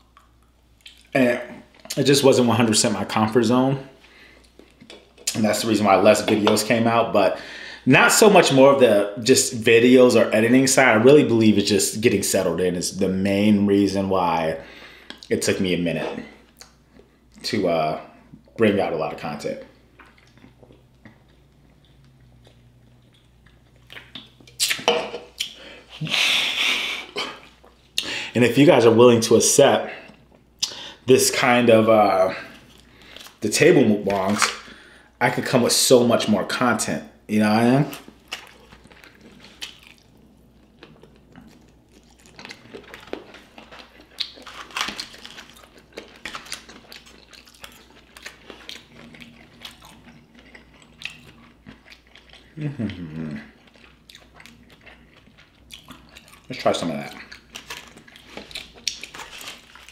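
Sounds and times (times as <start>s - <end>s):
person chewing food: 4.0s - 5.4s, 19.7s - 28.1s, 37.9s - 59.9s
loud crunching: 42.0s - 50.6s.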